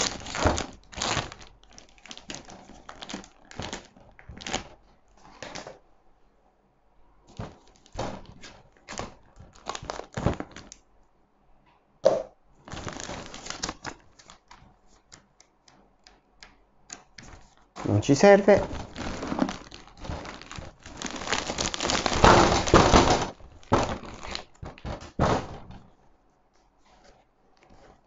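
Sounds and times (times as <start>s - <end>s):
plastic bag crinkling: 0.0s - 5.7s, 7.3s - 10.8s, 12.6s - 15.1s, 17.3s - 25.6s
paper pages handled: 12.7s - 15.8s, 17.0s - 25.9s.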